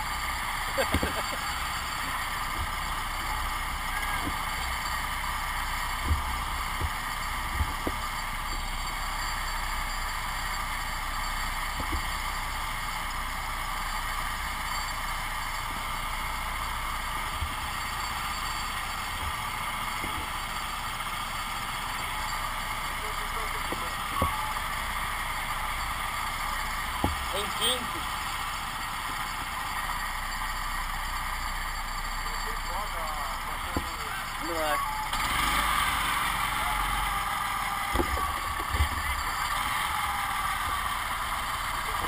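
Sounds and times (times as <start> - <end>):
go-kart engines droning: 0.0 - 42.0.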